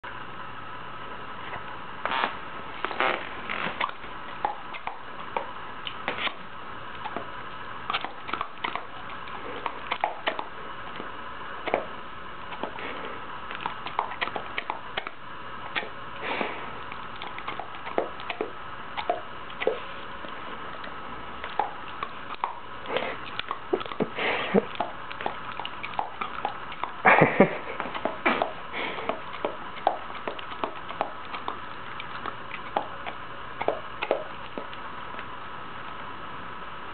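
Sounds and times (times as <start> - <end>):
dog sniffing and snuffling: 12.5 - 15.1, 15.7 - 34.8.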